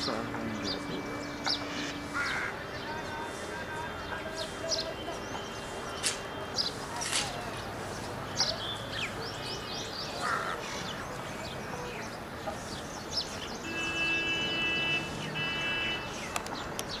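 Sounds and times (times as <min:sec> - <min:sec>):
steady held tone: 0:00.0 - 0:06.8
outdoor background noise: 0:00.0 - 0:17.0
small birds chirping: 0:00.0 - 0:17.0
crows cawing: 0:01.7 - 0:02.6, 0:10.2 - 0:10.8.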